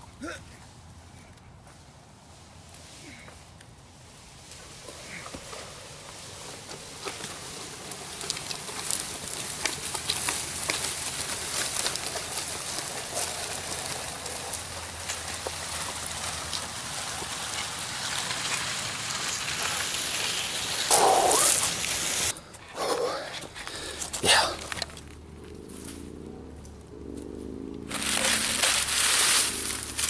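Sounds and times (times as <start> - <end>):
tree dragged across dirt: 1.6 - 30.0
footsteps: 27.9 - 30.0.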